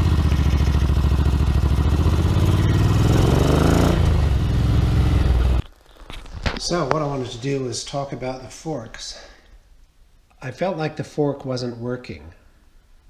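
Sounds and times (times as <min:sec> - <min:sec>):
motorcycle engine running: 0:00.0 - 0:05.7.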